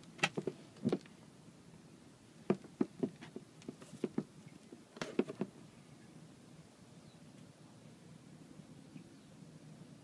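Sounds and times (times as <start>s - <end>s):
rubber cord knocking and clicking: 2.5s - 4.3s, 5.0s - 5.5s.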